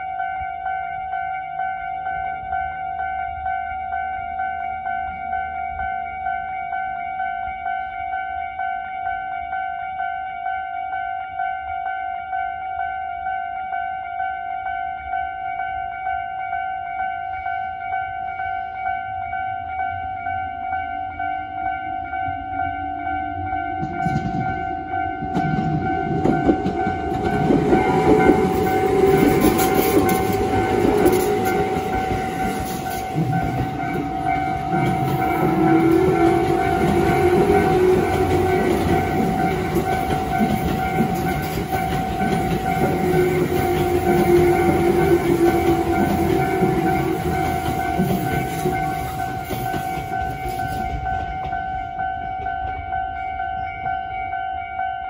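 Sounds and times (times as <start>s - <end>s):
crossing warning alarm ringing: 0.0s - 55.0s
trains clattering over rails: 21.0s - 54.6s.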